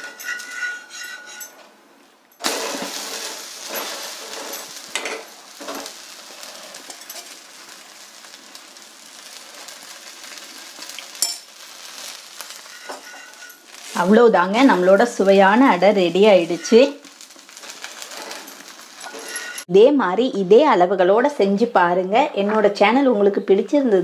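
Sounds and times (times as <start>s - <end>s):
food sizzling on a griddle: 2.4s - 19.7s.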